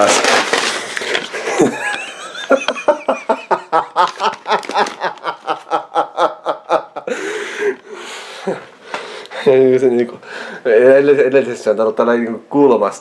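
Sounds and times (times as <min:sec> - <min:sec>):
man laughing: 0:01.4 - 0:07.8.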